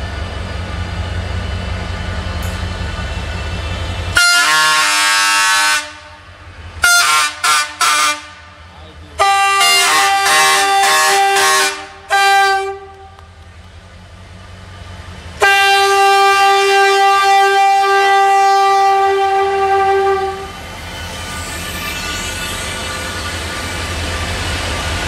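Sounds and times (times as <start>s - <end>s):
locomotive rumbling past: 0.0s - 25.0s
locomotive horn blasts: 4.1s - 8.5s, 9.2s - 13.3s, 15.4s - 20.6s.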